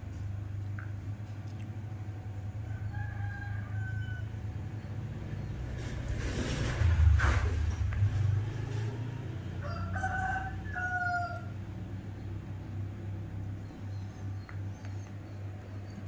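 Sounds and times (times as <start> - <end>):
steady low hum: 0.0 - 16.0
rooster crowing: 2.6 - 4.6, 9.0 - 11.7.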